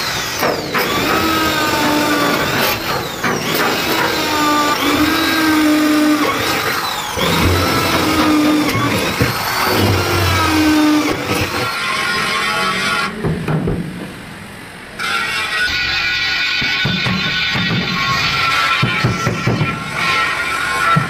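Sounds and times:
power tool whining: 0.0 - 13.3.

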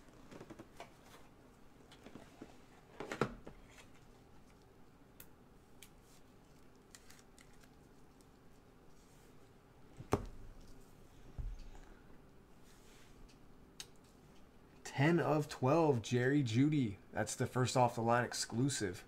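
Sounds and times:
cards clicking and rustling: 6.5 - 8.3.

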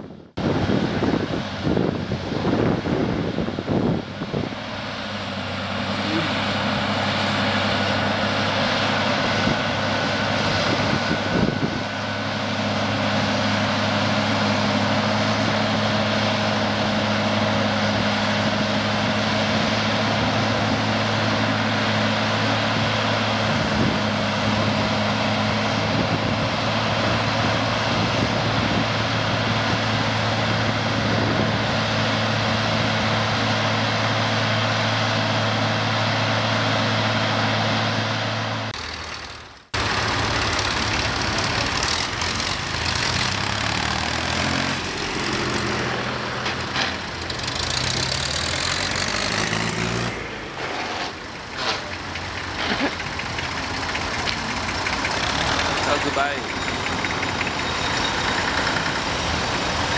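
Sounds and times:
wind buffeting microphone: 0.0 - 4.6
tractor diesel engine under load: 0.0 - 59.9.

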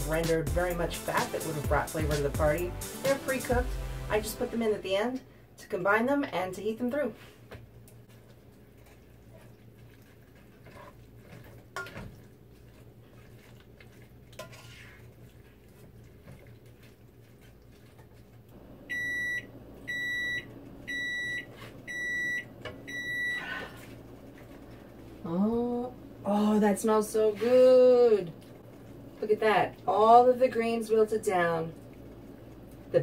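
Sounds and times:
low steady hum: 0.0 - 33.0
microwave oven beeping: 18.6 - 23.8.

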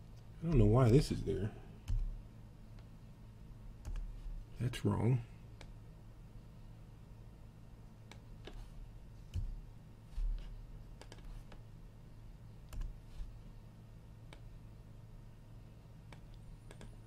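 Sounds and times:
steady low hum: 0.0 - 17.0
keyboard and mouse clicks: 1.8 - 2.2, 3.8 - 4.1, 8.1 - 8.6, 9.3 - 9.6, 10.2 - 11.6, 12.7 - 13.3, 16.1 - 17.0.

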